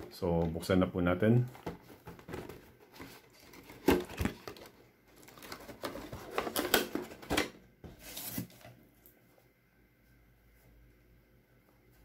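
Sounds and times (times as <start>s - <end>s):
packaging rustling and scraping: 1.4s - 8.8s.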